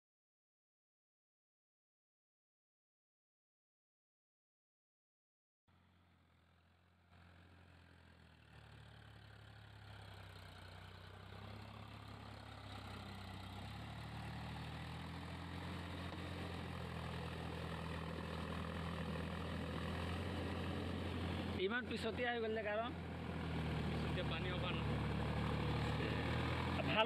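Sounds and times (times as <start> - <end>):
tractor diesel engine running: 5.7 - 27.0.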